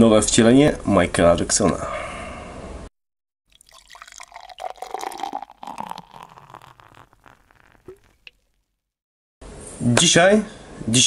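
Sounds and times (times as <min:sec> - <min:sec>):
beer pouring from bottle: 0:03.5 - 0:08.7.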